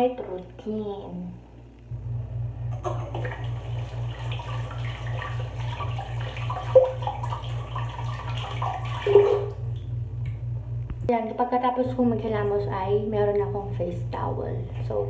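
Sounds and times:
low pulsing hum: 0:00.0 - 0:15.0
water running from a tap: 0:02.9 - 0:09.8.

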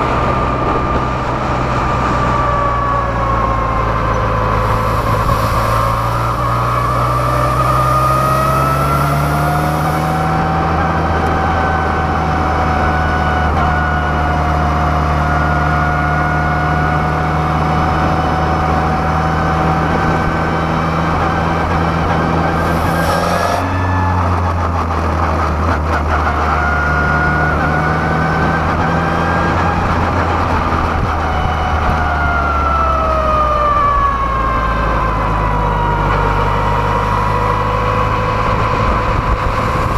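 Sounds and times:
race car engine under load: 0:00.0 - 0:14.2.

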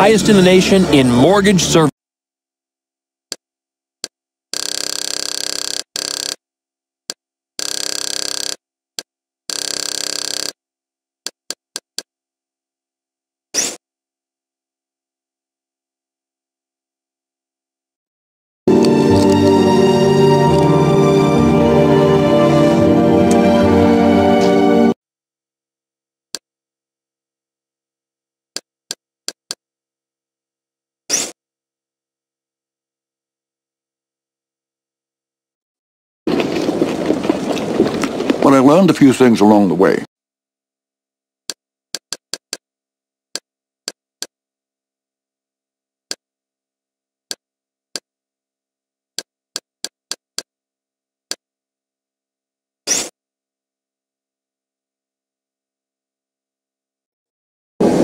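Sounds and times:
music: 0:18.7 - 0:25.0.

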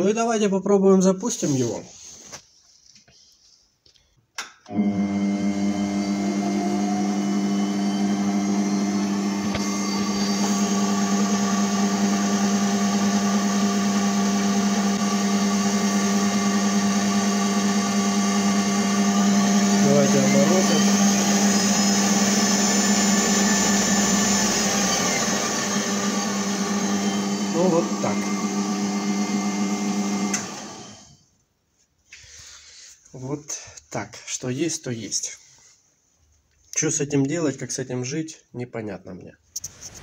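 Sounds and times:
spindle motor humming: 0:04.7 - 0:31.0.

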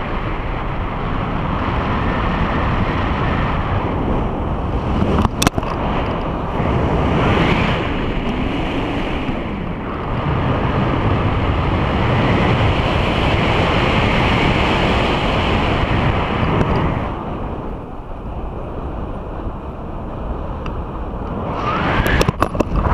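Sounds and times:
wind rushing over microphone: 0:00.0 - 0:22.9.

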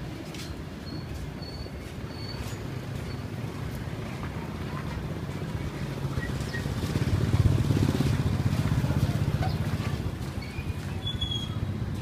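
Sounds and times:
small motorbike engine passing: 0:05.8 - 0:10.1.

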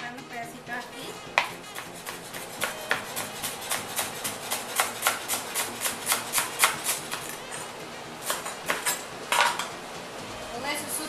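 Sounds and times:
knife chopping on cutting board: 0:01.4 - 0:07.4, 0:08.2 - 0:09.6.

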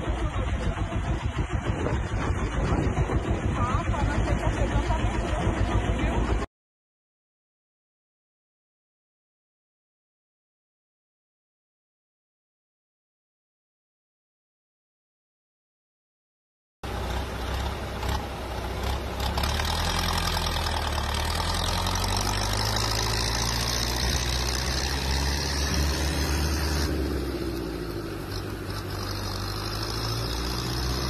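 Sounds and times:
dense rushing noise: 0:00.0 - 0:06.4
tractor engine running: 0:00.0 - 0:06.5, 0:16.8 - 0:31.0.

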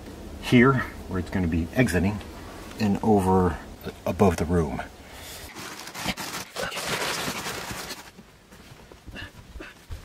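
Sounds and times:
flexible ducting rustling: 0:05.2 - 0:08.8.

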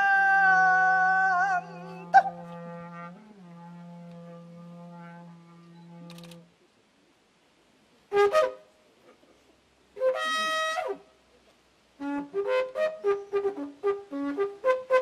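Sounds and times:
wind instrument playing: 0:00.0 - 0:06.4, 0:08.1 - 0:08.8, 0:10.0 - 0:11.1, 0:12.0 - 0:15.0.

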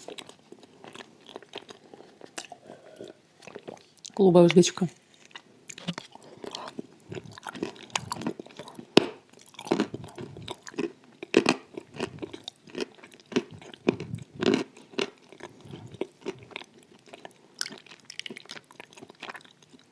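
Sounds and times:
wet mouth eating sounds: 0:00.0 - 0:04.2, 0:05.2 - 0:19.9.

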